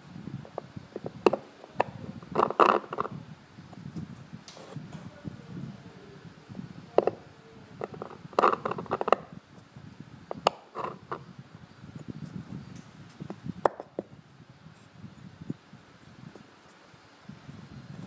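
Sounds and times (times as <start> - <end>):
knife scraping and chipping stone: 7.8 - 9.2, 10.4 - 11.2.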